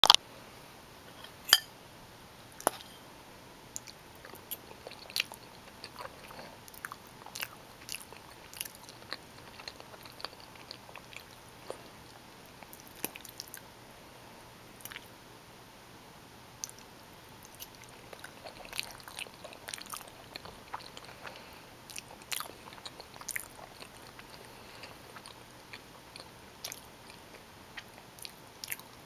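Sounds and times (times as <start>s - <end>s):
person chewing wet mouth sounds: 3.8s - 13.6s, 14.8s - 15.1s, 16.6s - 29.0s.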